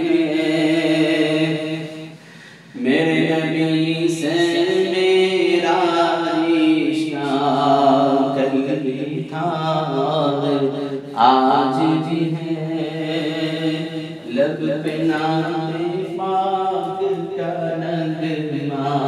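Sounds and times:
man singing unaccompanied: 0:00.0 - 0:02.2, 0:02.8 - 0:19.0.

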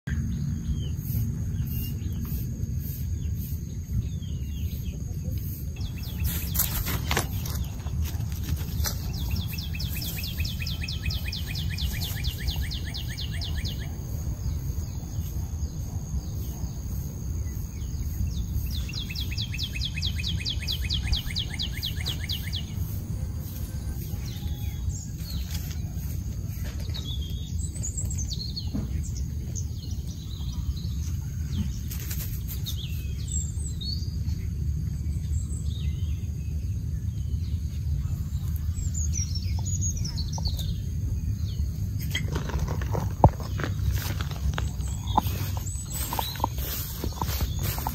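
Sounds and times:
steady low rumble: 0:00.1 - 0:31.9, 0:32.8 - 0:47.9
bird trills: 0:18.8 - 0:24.9.

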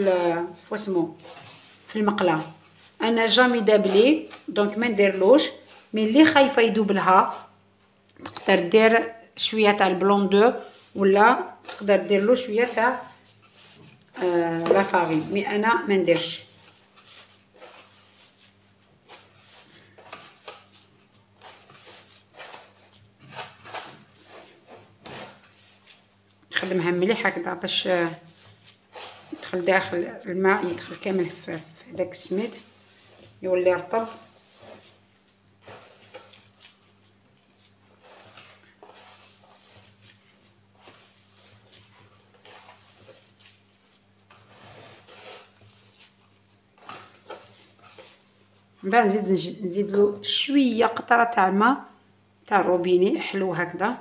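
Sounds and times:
hands rubbing grains in bowl: 0:00.0 - 0:07.6, 0:09.6 - 0:49.3.

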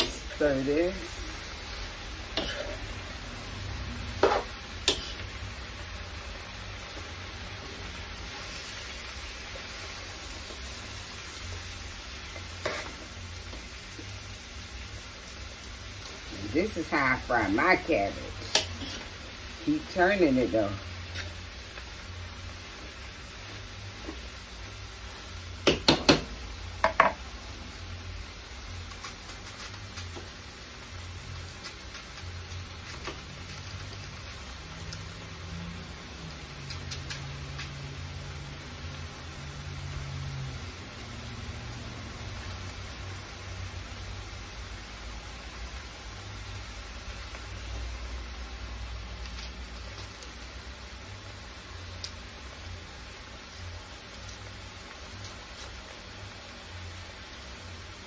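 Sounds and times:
metal spoon stirring in a pan: 0:00.0 - 0:06.3, 0:08.2 - 0:14.8, 0:15.7 - 0:22.0
cabbage sizzling in a pan: 0:00.0 - 0:58.0.

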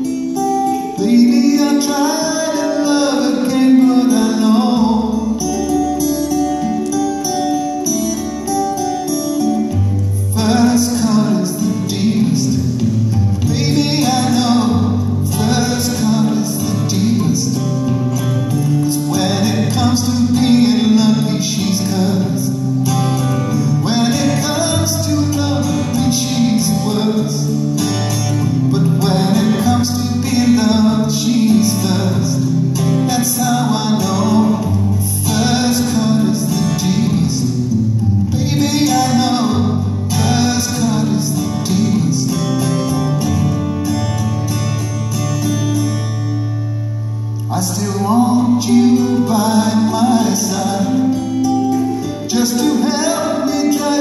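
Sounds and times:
acoustic guitar: 0:00.0 - 0:54.0
man singing: 0:00.3 - 0:06.1, 0:10.0 - 0:43.1, 0:47.4 - 0:54.0.

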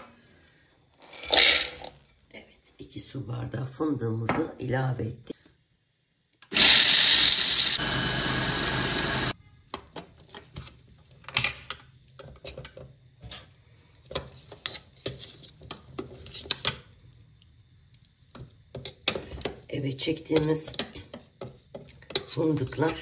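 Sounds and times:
food processor grinding nuts: 0:06.4 - 0:09.4.

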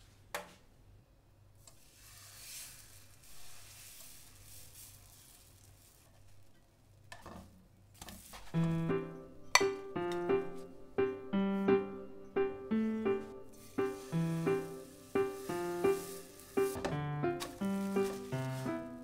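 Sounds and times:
batter sizzling in a pan: 0:01.8 - 0:06.5, 0:13.5 - 0:19.0.

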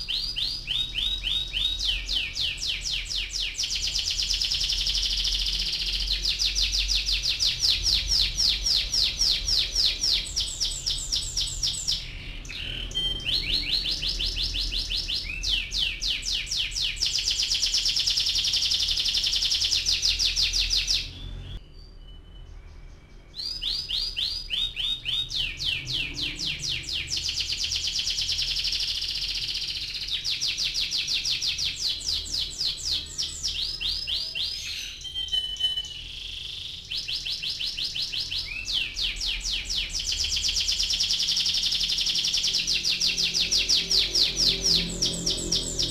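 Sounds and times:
canary singing trills: 0:00.0 - 0:45.9.

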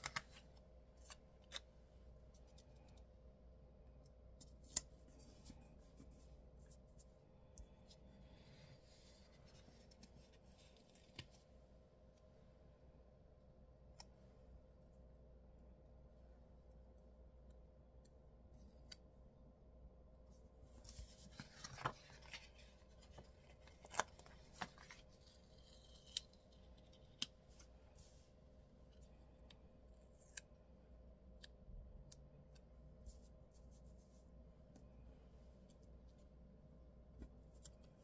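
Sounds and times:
paper rustling: 0:20.7 - 0:26.9.

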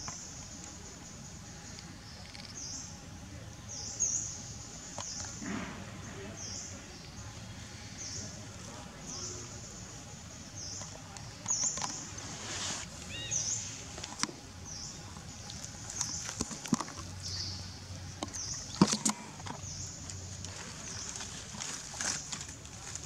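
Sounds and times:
dry leaves crackling: 0:11.7 - 0:14.2, 0:18.6 - 0:23.0.

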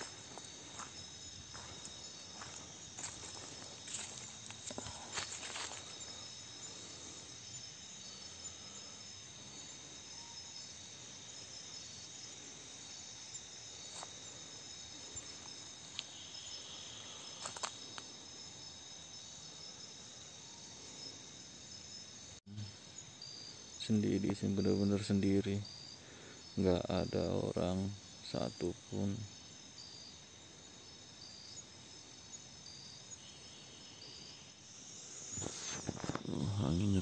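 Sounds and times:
crickets trilling: 0:00.0 - 0:37.0.

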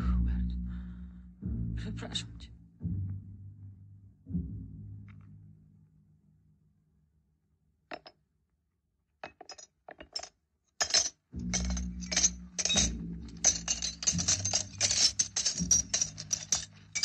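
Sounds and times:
coins clinking: 0:09.2 - 0:17.0.

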